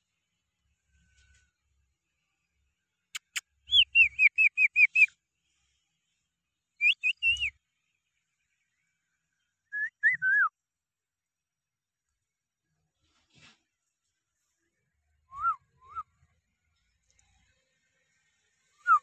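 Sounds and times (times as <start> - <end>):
sharp clicks: 3.2 - 3.4.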